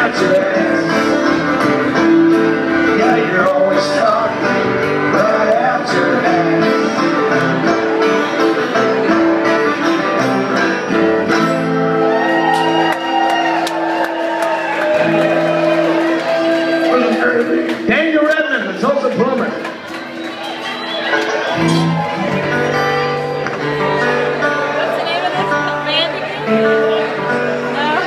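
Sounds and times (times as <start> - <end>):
strummed acoustic guitar: 0.0 - 12.9, 21.1 - 28.0.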